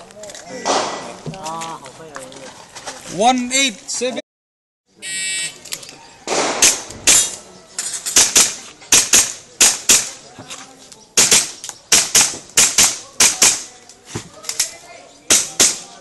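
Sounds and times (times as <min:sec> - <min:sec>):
airsoft pistol shots: 0:00.6 - 0:01.1, 0:06.3 - 0:07.3, 0:11.2 - 0:13.6, 0:15.3 - 0:15.9.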